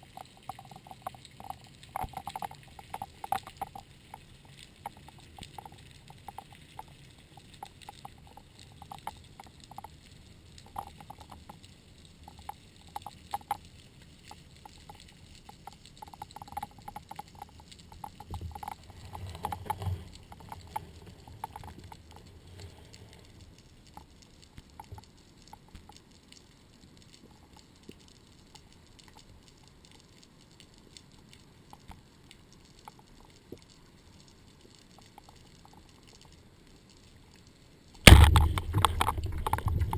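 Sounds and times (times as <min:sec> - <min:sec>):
rumbling water movement: 0:00.0 - 0:25.9, 0:38.0 - 0:39.9
faint underwater clicks and crackles: 0:00.0 - 0:39.9.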